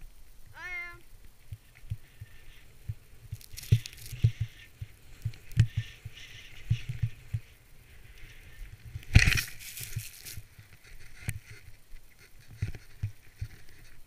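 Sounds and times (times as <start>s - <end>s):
wind thumps on camera: 1.1s - 14.0s
skis hissing through powder snow: 2.0s - 11.0s.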